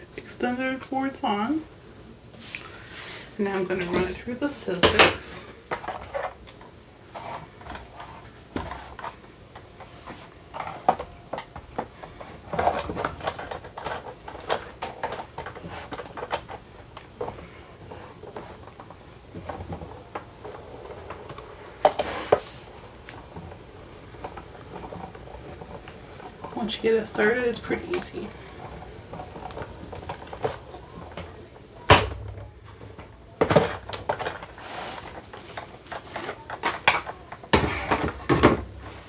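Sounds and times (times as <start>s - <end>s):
plastic clatter: 4.8s - 39.0s.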